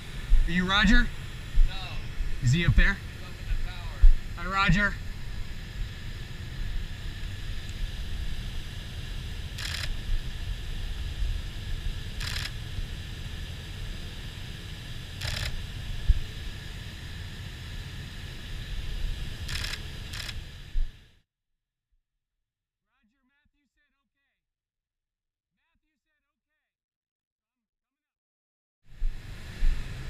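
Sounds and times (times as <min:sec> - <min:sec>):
low steady rumble: 0:00.0 - 0:21.1, 0:28.9 - 0:30.0
camera shutter clicks: 0:09.6 - 0:10.0, 0:12.2 - 0:12.6, 0:15.2 - 0:15.6, 0:19.5 - 0:20.4.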